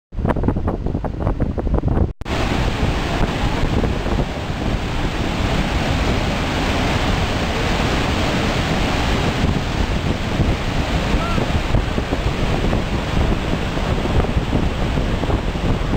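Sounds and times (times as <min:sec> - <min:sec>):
wind buffeting microphone: 0:00.2 - 0:15.9
waterfall rushing: 0:02.3 - 0:15.9.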